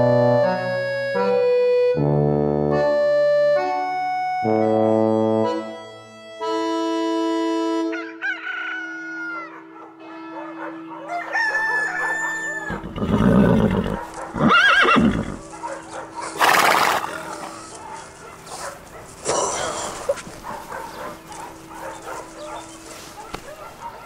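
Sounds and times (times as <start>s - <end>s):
organ chords: 0.0s - 8.2s, 19.3s - 23.2s.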